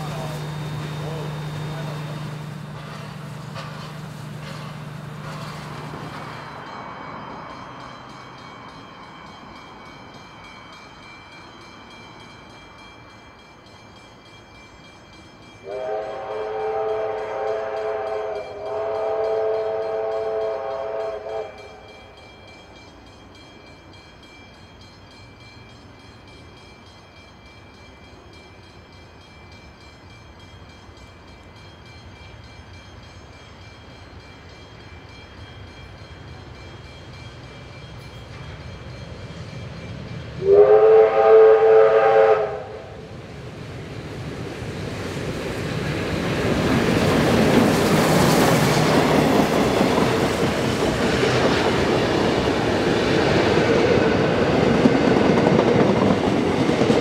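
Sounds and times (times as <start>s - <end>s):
train rumble: 0.0s - 57.0s
distant train horn blasts: 15.6s - 21.9s, 40.4s - 43.1s.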